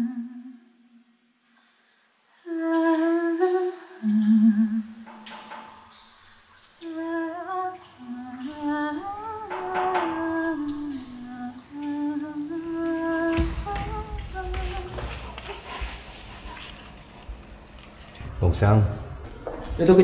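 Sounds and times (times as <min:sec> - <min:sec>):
person humming a slow melody: 0:02.4 - 0:05.1, 0:06.8 - 0:15.8.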